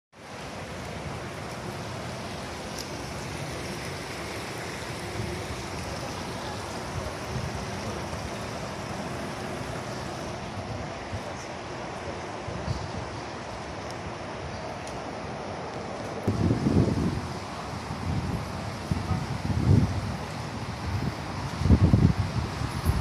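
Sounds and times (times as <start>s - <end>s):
water rushing: 0.2s - 23.0s
wind on microphone: 16.2s - 23.0s.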